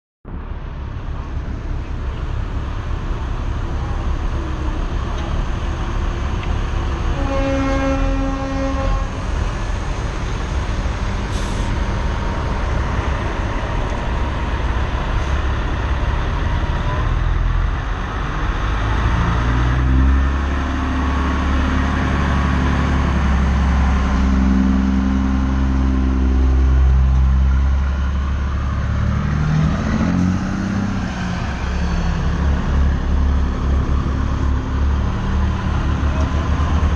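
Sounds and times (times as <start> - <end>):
diesel truck engines rumbling: 0.2 - 36.9
truck air horn: 7.1 - 9.4.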